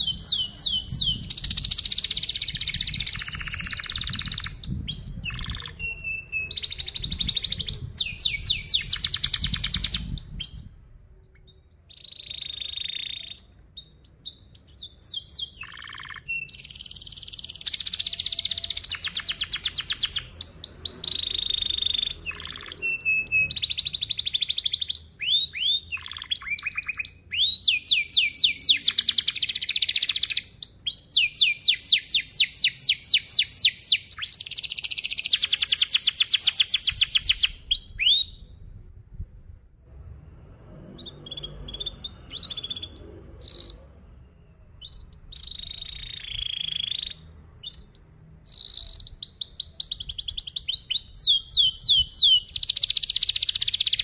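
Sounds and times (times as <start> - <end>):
canary singing chirps and trills: 0.0 - 38.7, 40.8 - 54.0.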